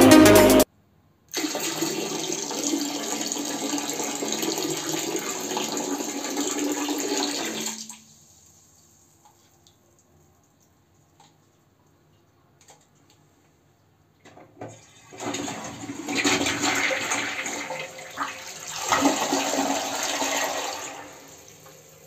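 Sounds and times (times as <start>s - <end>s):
toilet flushing: 1.3s - 8.7s, 14.4s - 22.0s.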